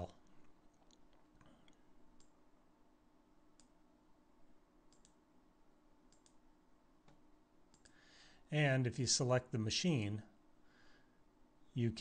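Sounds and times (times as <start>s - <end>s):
computer mouse clicks: 0.8s - 2.4s, 3.6s - 3.8s, 4.9s - 5.2s, 6.1s - 6.4s, 7.0s - 7.9s.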